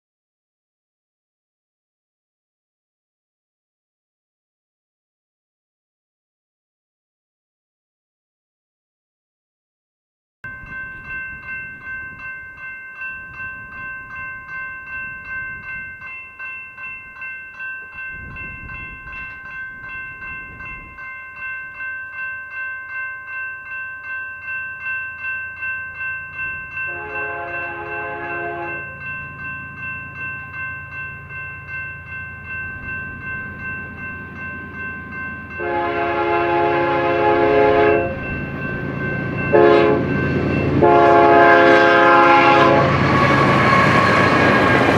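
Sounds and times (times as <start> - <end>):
crossing bell ringing: 10.4 - 44.9
train rumble: 26.2 - 44.9
train horn: 26.9 - 29.0, 35.6 - 38.3, 39.5 - 40.2, 40.8 - 44.6.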